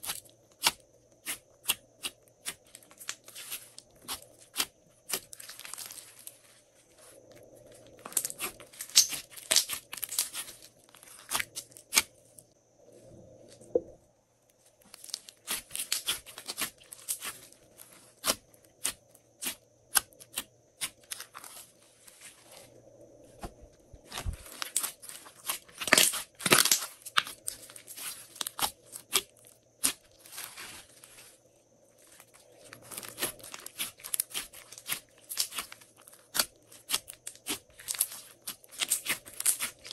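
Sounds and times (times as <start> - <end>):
slime crackling and popping: 8.1 - 12.1, 24.1 - 30.0, 32.8 - 39.9.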